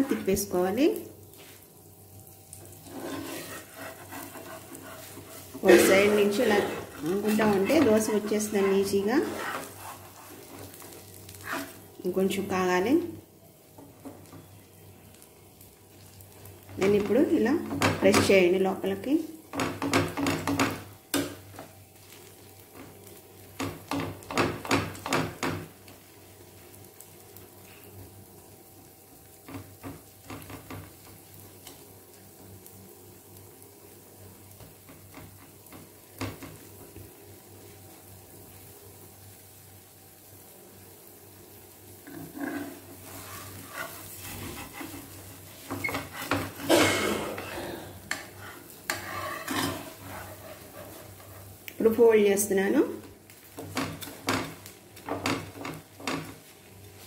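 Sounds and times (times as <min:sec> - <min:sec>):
food sizzling quietly: 0:00.0 - 0:57.0
spatula scraping a pan: 0:02.7 - 0:11.9, 0:42.0 - 0:47.4, 0:48.0 - 0:51.6.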